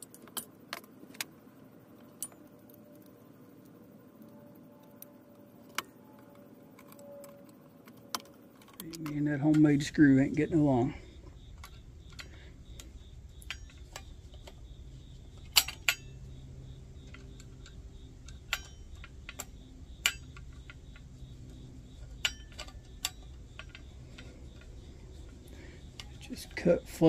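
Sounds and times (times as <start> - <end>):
screwdriver clicking on metal: 11.4 - 14.6, 15.4 - 16.3, 17.0 - 27.0.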